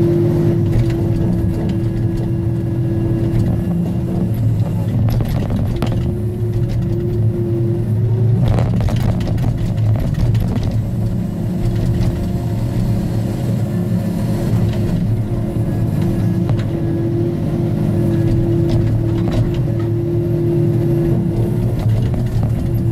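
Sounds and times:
diesel engine running: 0:00.0 - 0:22.9.

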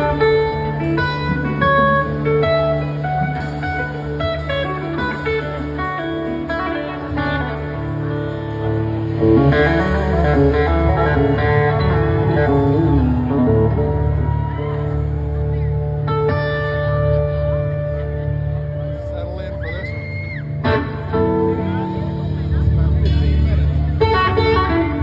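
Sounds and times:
electric slide guitar solo: 0:00.0 - 0:18.9, 0:19.5 - 0:23.1, 0:23.8 - 0:25.0
bass guitar: 0:00.0 - 0:25.0
drums: 0:00.0 - 0:25.0.

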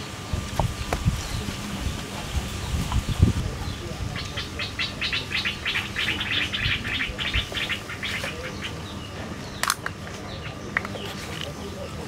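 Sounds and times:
bird chirping: 0:00.6 - 0:12.0.

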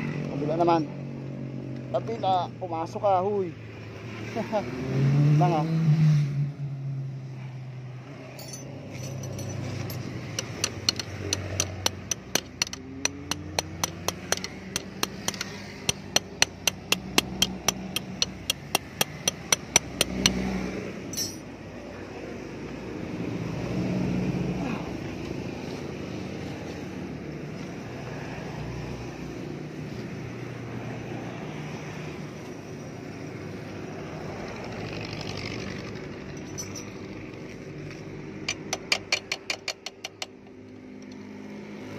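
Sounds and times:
tool tapping metal: 0:08.4 - 0:20.5, 0:21.1 - 0:21.5, 0:38.4 - 0:41.2.

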